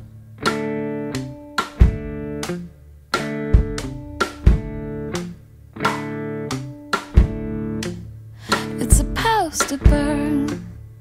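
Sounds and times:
strummed guitar chords: 0.0 - 11.0
drum hit: 3.2 - 4.9, 7.0 - 7.6.

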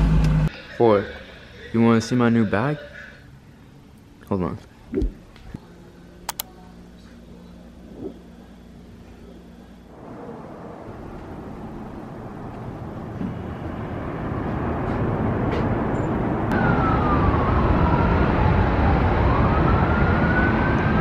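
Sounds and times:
city traffic noise: 0.0 - 6.5, 9.7 - 21.0
emergency vehicle siren wailing: 9.9 - 21.0.

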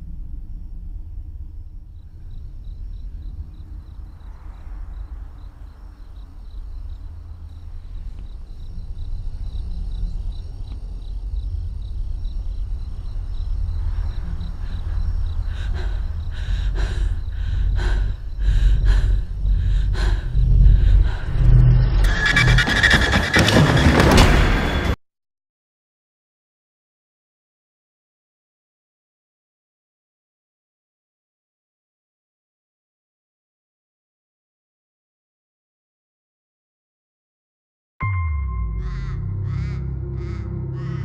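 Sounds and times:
deep low rumbling drone: 0.0 - 23.1, 38.0 - 41.0.

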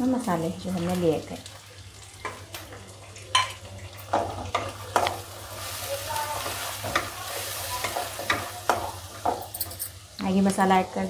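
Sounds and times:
food sizzling in oil: 0.0 - 11.0
spatula knocking and scraping pan: 6.3 - 9.6.

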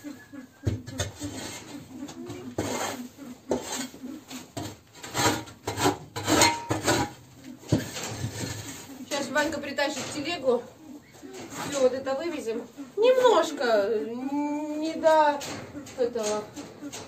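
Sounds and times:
shovel scraping floor: 2.6 - 8.9.

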